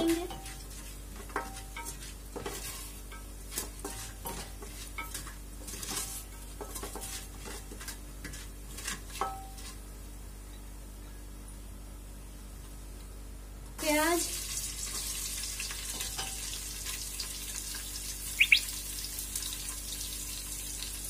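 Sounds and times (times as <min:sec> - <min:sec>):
wooden spoon scraping metal pot: 0:00.0 - 0:09.8
spices sizzling in oil: 0:00.0 - 0:10.4, 0:13.8 - 0:21.0.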